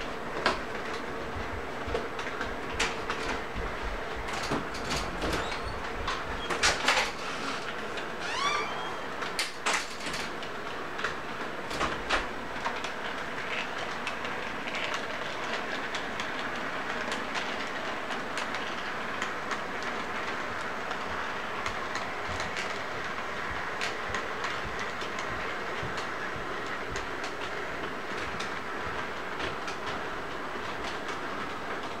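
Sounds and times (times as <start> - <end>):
sharp clicks of train wheels: 0.0 - 8.2, 9.1 - 32.0
model train rolling on track: 9.1 - 32.0.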